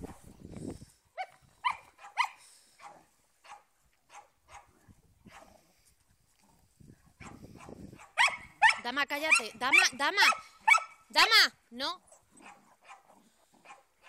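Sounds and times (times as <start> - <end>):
small dog barking: 1.2 - 5.5, 7.2 - 11.0, 12.1 - 13.9.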